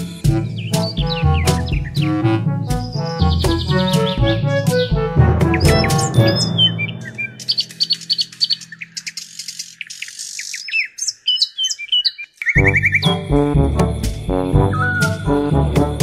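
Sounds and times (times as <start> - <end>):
background music: 0.0 - 8.7, 12.6 - 16.0
birds chirping: 0.0 - 16.0.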